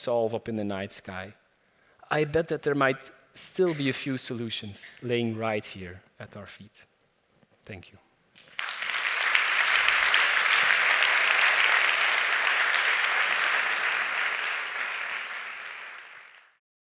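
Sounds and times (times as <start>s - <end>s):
audience applauding: 8.4s - 16.6s.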